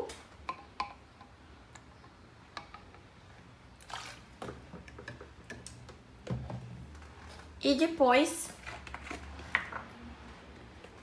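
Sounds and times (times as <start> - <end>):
bottles clicking and tapping: 0.4 - 1.9, 4.4 - 6.7.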